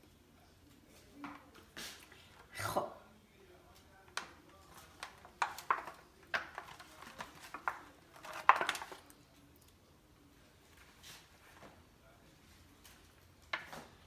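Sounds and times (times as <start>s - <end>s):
foil pan crinkling: 4.2s - 9.2s.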